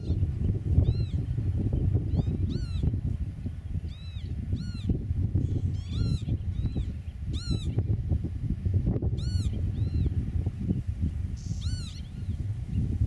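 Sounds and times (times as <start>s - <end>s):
bird piping calls: 2.1s - 2.9s, 3.9s - 7.8s, 9.2s - 10.1s, 11.4s - 12.4s.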